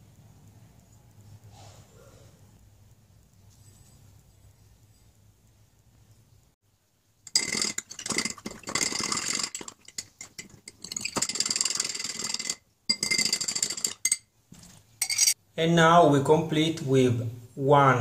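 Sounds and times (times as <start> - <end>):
teaspoon clinking against glass: 15.0 - 15.4.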